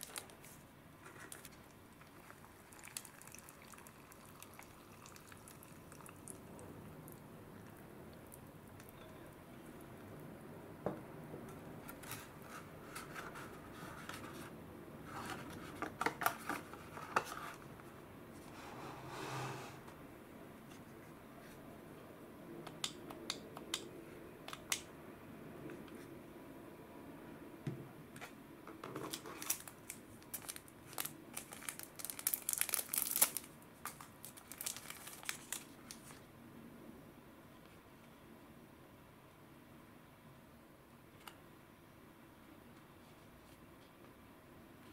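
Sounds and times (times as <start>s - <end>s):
paper and foil crinkling: 0.0s - 2.3s, 29.0s - 36.2s
water trickling into cup: 2.0s - 7.2s.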